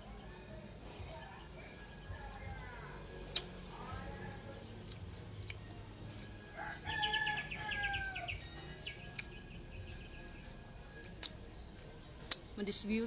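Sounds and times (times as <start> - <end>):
rooster crowing: 6.4 - 8.6.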